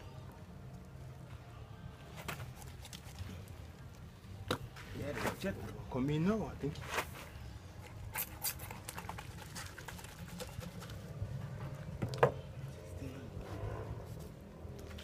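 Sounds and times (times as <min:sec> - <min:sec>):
low hum: 0:07.2 - 0:15.0.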